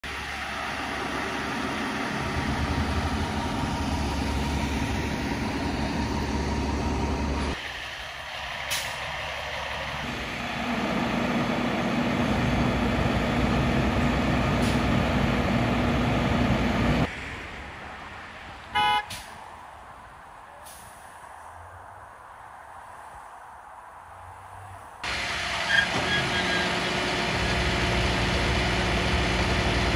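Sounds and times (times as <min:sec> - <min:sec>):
diesel truck engines rumbling: 0:00.0 - 0:29.9
vehicle horn toot: 0:18.8 - 0:19.2.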